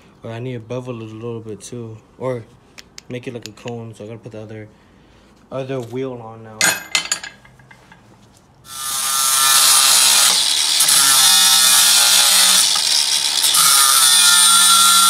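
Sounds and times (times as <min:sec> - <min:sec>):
angle grinder grinding steel: 0:08.7 - 0:15.0.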